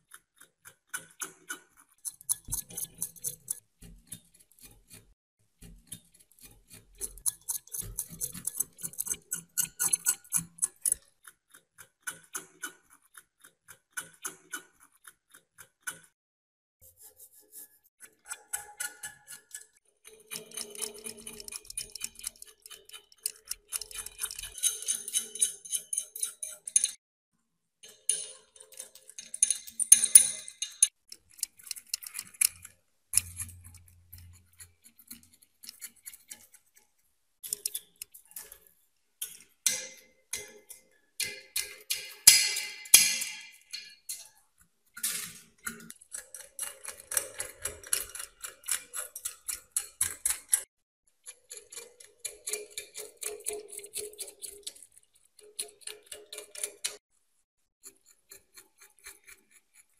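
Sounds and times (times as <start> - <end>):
metal scraper scraping rust: 0.0 - 16.2, 16.8 - 27.0, 27.9 - 57.0, 57.8 - 59.9.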